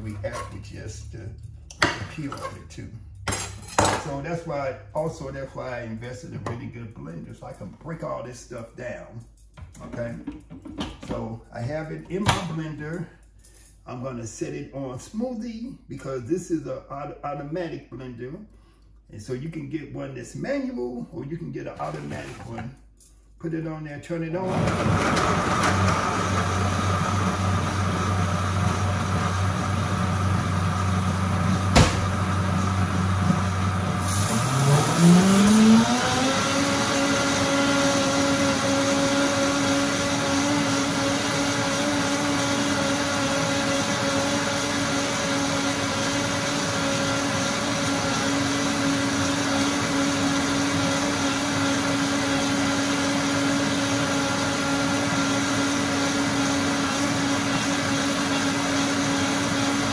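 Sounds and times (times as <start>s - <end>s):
blender motor whining: 24.4s - 59.9s.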